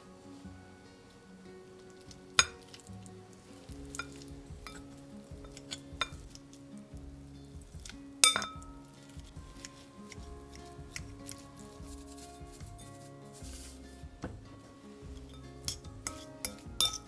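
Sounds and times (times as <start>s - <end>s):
soft background music: 0.0s - 17.0s
utensil clinking glass bowl: 8.2s - 8.7s, 15.1s - 17.0s.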